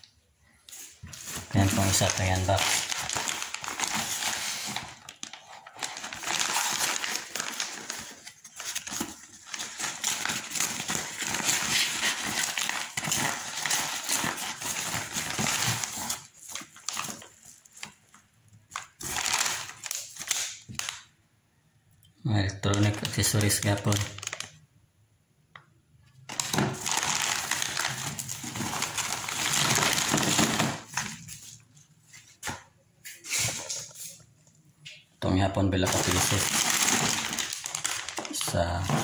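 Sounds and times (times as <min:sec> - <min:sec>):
paper mailer crinkling: 0:00.7 - 0:18.1, 0:18.7 - 0:21.0, 0:26.3 - 0:32.4, 0:35.8 - 0:39.0
plastic bag crackling: 0:00.8 - 0:21.0, 0:22.7 - 0:24.6, 0:26.3 - 0:32.3, 0:35.8 - 0:39.0.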